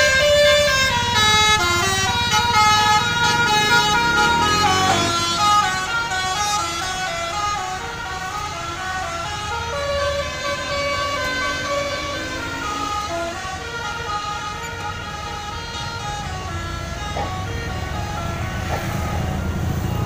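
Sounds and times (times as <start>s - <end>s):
multi-tone bus horn melody: 0.0s - 20.0s
low rumble: 10.2s - 14.3s.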